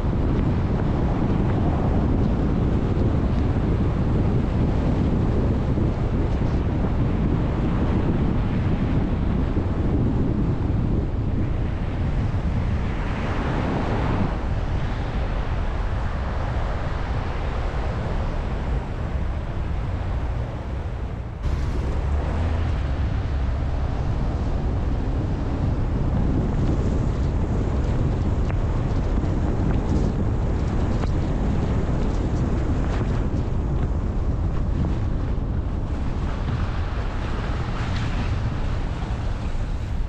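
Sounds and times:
wind rushing over microphone: 0.0s - 40.0s
tyres hissing on wet road: 21.4s - 23.9s.

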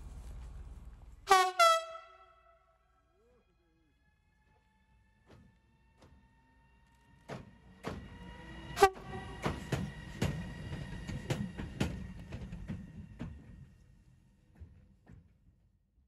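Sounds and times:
low train rumble: 0.0s - 15.6s
train wheels knocking over track joints: 7.1s - 13.8s.

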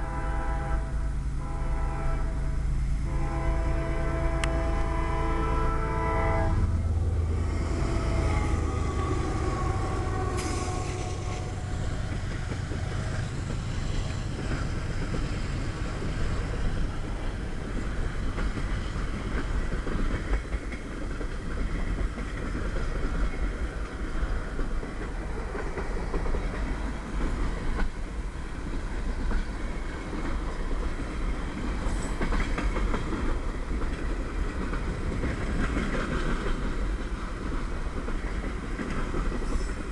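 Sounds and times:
train horn: 0.0s - 13.3s
locomotive low rumble: 0.0s - 39.9s
freight cars rolling: 4.3s - 39.9s
wheels clicking over rail joints: 9.6s - 39.9s.

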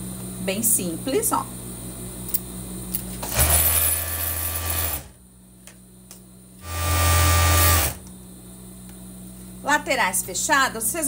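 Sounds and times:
overlock sewing machine running: 3.3s - 5.1s, 6.6s - 8.0s.

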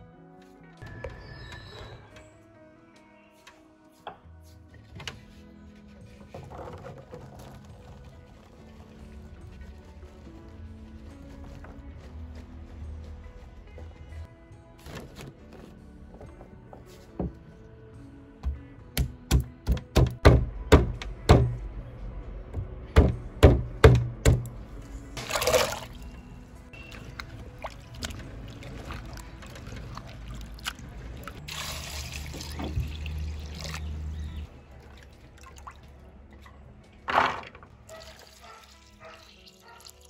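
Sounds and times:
water poured into pot: 25.2s - 26.0s, 27.1s - 34.0s
water sloshing in pot: 25.2s - 26.1s, 26.8s - 36.0s.

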